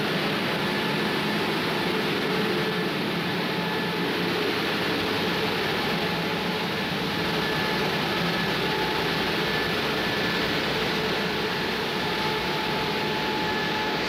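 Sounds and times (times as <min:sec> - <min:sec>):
faint whining tones: 0:00.0 - 0:14.0
mill machinery running: 0:00.0 - 0:14.0.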